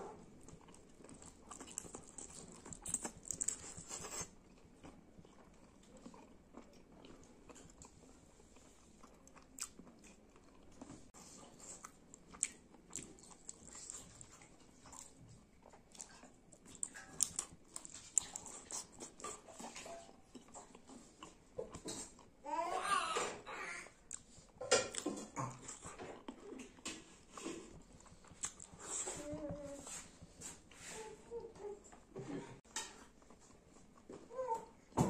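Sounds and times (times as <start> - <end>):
chewing with biting clicks: 0.4 - 22.3, 24.1 - 29.0.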